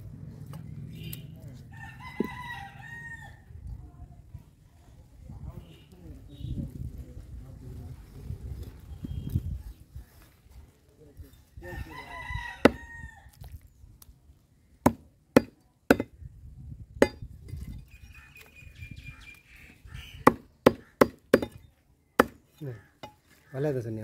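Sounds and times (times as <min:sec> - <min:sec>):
cleaver chopping on wooden block: 0:14.8 - 0:16.2, 0:17.0 - 0:17.2, 0:20.2 - 0:21.6, 0:22.2 - 0:23.2.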